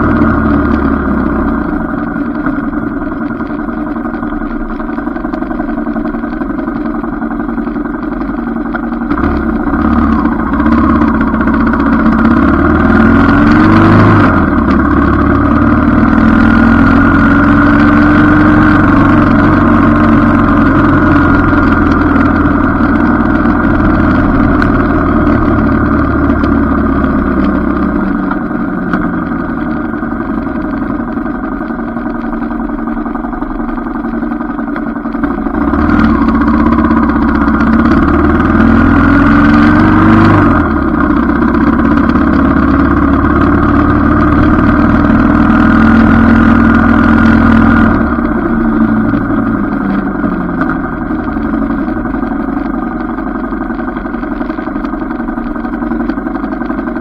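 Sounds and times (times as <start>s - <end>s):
motorcycle engine running: 0.0s - 57.0s.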